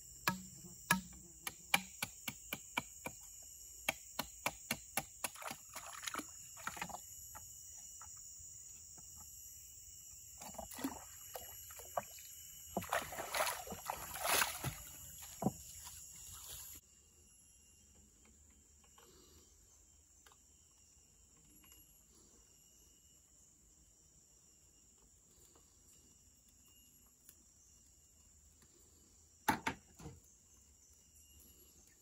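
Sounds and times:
jungle insects buzzing: 0.0 - 17.8
machete striking bamboo: 0.2 - 5.6
splashing in shallow water: 5.3 - 7.0, 10.4 - 16.8.

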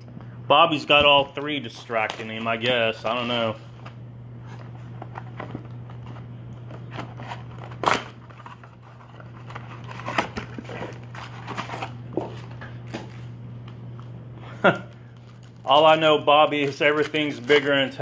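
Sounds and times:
cardboard box rustling and crinkling: 6.9 - 13.2.

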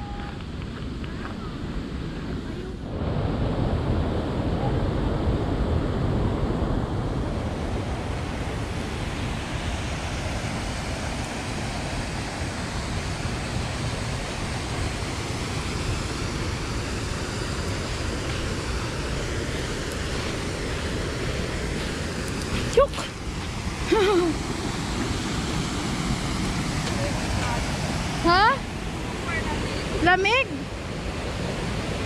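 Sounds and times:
stream rushing over gravel: 8.2 - 32.0.

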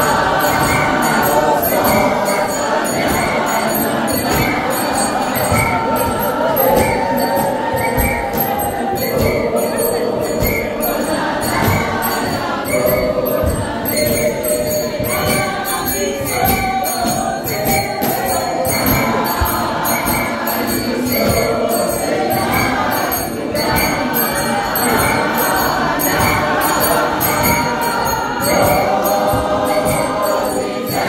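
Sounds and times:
congregation singing a hymn: 0.0 - 31.0
steady percussive beat: 0.0 - 31.0.

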